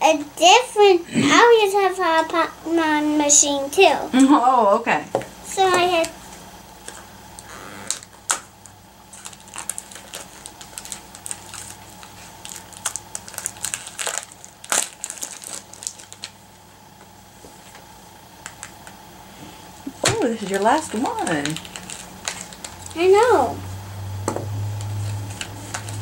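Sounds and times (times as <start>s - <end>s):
plastic packaging crinkling: 6.8s - 19.0s, 19.9s - 23.0s, 24.8s - 26.0s.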